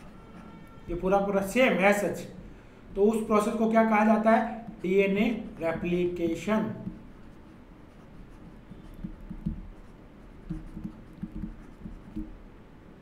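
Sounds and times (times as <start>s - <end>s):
stylus scratching on pen tablet: 4.5s - 12.4s.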